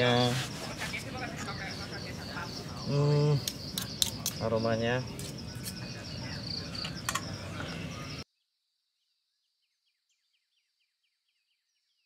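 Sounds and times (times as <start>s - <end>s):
insects chirping: 0.0s - 10.2s.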